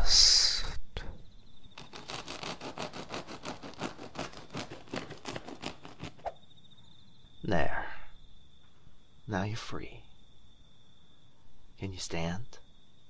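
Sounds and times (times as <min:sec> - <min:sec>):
blade sawing through rope: 0:01.8 - 0:06.4.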